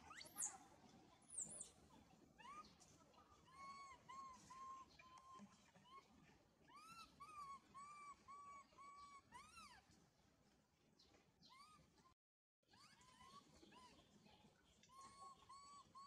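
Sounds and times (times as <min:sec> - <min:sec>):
infant monkey crying: 0:02.4 - 0:02.7, 0:03.5 - 0:06.0, 0:06.7 - 0:09.8, 0:11.5 - 0:11.9, 0:12.7 - 0:13.9, 0:14.9 - 0:16.0.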